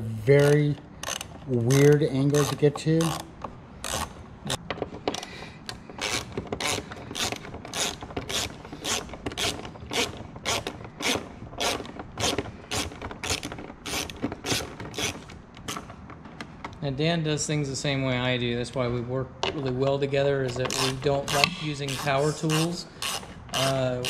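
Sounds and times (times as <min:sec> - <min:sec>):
hand ratchet clicking: 0:00.0 - 0:04.6, 0:05.2 - 0:15.9, 0:20.5 - 0:24.0.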